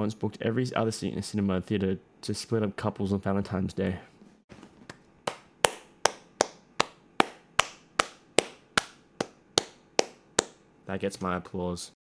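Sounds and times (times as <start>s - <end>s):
person clapping slowly: 4.9s - 10.6s.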